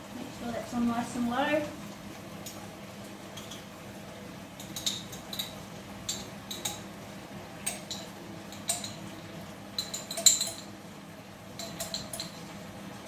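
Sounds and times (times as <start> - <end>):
metal spoon clinking on glass jar: 9.8 - 10.7, 11.6 - 12.4.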